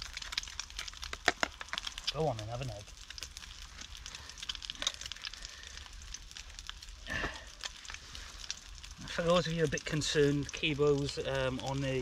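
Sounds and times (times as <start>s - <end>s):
egg frying in a pan: 0.0s - 12.0s
wood fire crackling: 0.0s - 12.0s.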